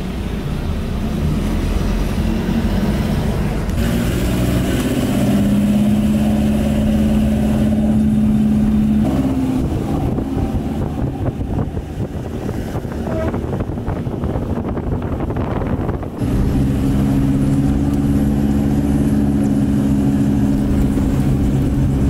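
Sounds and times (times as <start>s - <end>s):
road noise: 0.0s - 22.0s.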